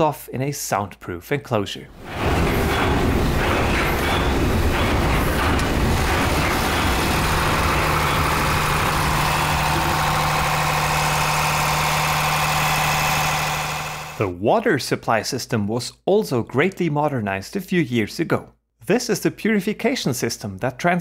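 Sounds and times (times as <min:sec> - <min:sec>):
diesel generator drone: 0:02.0 - 0:14.2
steady low hum: 0:02.0 - 0:14.2
higher buzzing: 0:05.6 - 0:14.2.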